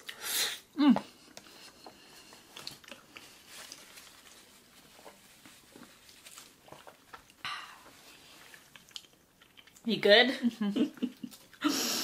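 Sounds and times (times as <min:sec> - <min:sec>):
paper napkin rustling: 0:03.3 - 0:07.0.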